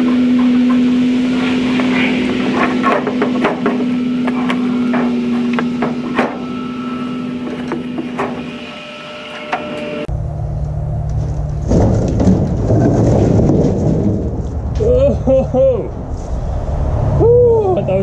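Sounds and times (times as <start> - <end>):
metal knocks and clanks: 0.0 - 10.1, 11.2 - 14.9
loud low rumbling: 0.0 - 18.0
steady mechanical hum: 0.0 - 18.0.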